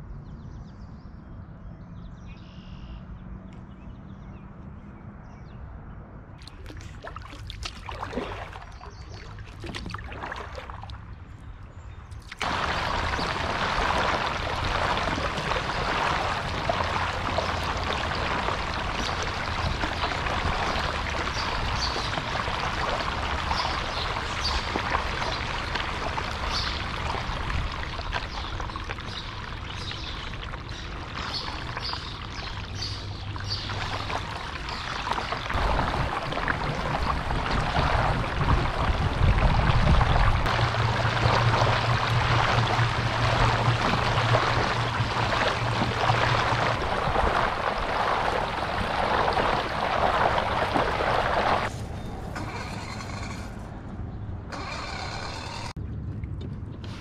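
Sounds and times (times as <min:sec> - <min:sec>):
paddle splashes: 0:06.4 - 0:11.4, 0:12.1 - 0:51.8
water sloshing against hull: 0:06.4 - 0:53.8
low rumble: 0:33.7 - 0:54.5.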